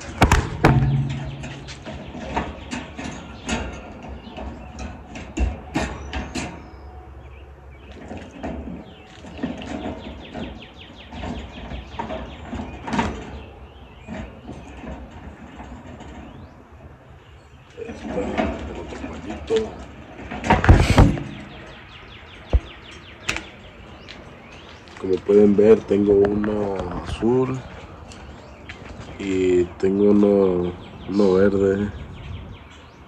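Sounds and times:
wire birdcage rattling: 0.1 - 6.7.

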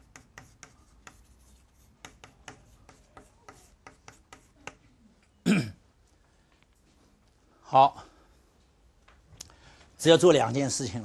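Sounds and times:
chalk tapping and scraping: 0.0 - 4.9.

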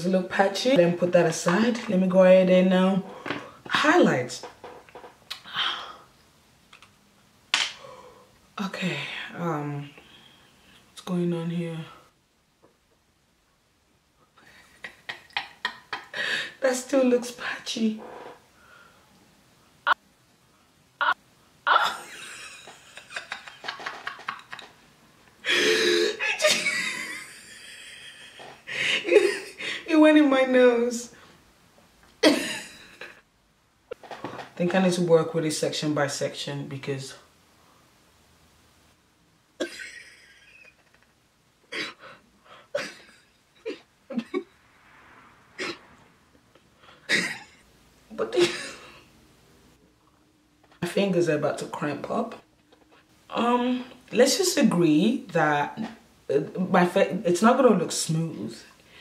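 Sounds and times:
woman laughing: 14.4 - 16.6, 21.0 - 24.8, 25.4 - 29.9, 39.6 - 41.1, 42.8 - 44.5, 48.3 - 48.8
woman grunting and exhaling: 25.4 - 26.4.

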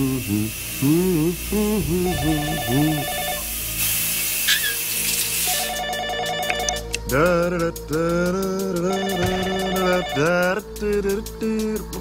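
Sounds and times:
man singing wordlessly: 0.0 - 3.4, 7.0 - 12.0
running shower hiss: 0.0 - 5.8
telephone ringing: 2.1 - 3.5, 5.6 - 6.9, 8.9 - 10.3.

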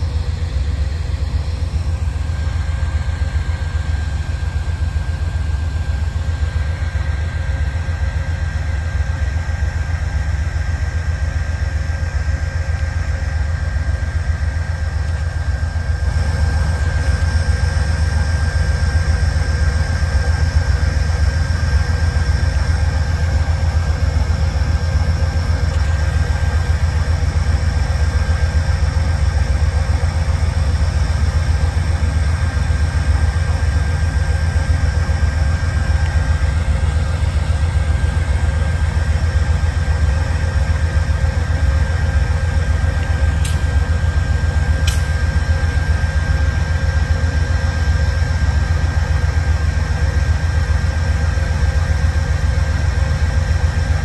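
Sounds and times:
diesel locomotive idling: 0.0 - 54.0
high whine: 0.0 - 54.0
brief clicks: 44.8 - 45.1.

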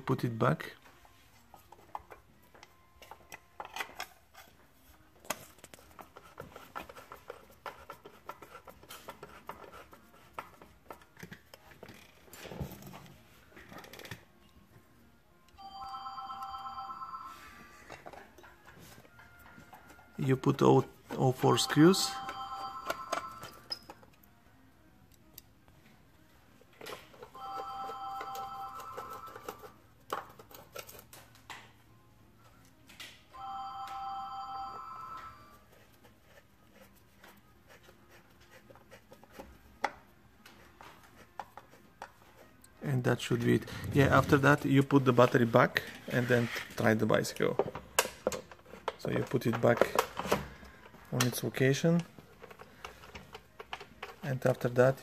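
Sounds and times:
telephone ringing: 15.6 - 17.9, 21.2 - 23.7, 27.2 - 29.8, 33.3 - 35.6.

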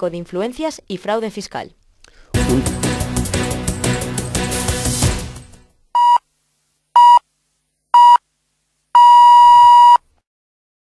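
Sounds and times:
music: 2.3 - 5.8
radio time signal beeps: 6.0 - 6.2, 7.0 - 7.2, 8.0 - 8.2, 9.0 - 10.0.

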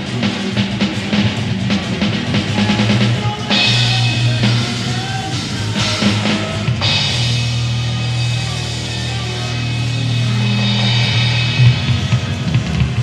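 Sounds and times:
rock music with drums and bass: 0.0 - 13.0.

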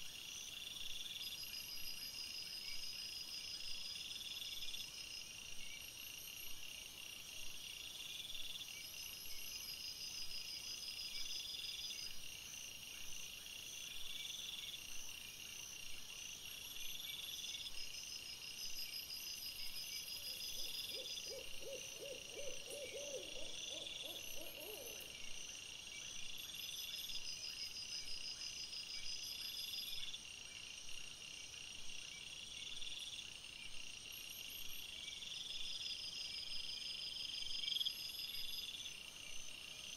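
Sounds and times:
insects chirping: 0.0 - 39.9
low trembling animal call: 20.5 - 25.1.

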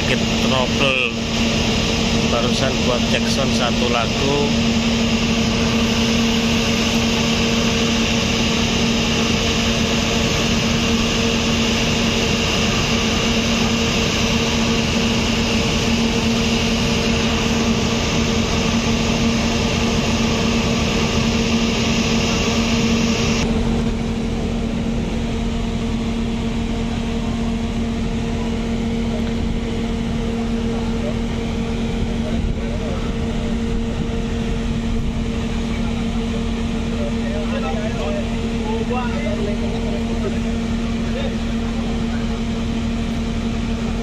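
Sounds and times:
generator engine drone: 0.0 - 44.0.

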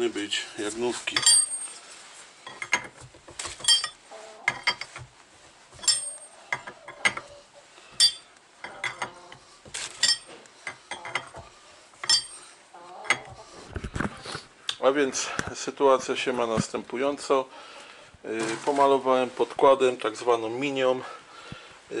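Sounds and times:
metallic clinks of hand tool: 1.2 - 1.8, 3.6 - 4.0, 5.8 - 7.2, 8.0 - 9.1, 9.9 - 11.4, 12.0 - 12.5.

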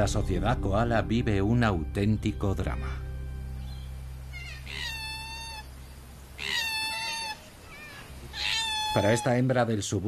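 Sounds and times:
koala wailing calls: 4.2 - 9.5.

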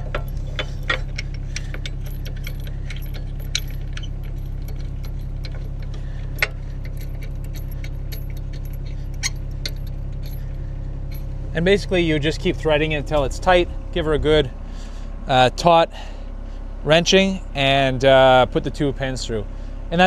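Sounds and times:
metal clicks and clinks: 0.0 - 11.4
diesel engine idling: 0.0 - 20.0.

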